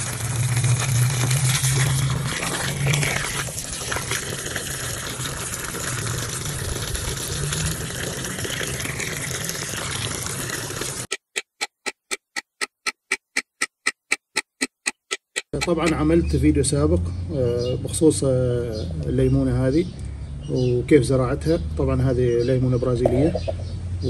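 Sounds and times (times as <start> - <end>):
water splashing into puddle: 0.0 - 11.1
clock ticking: 11.1 - 16.1.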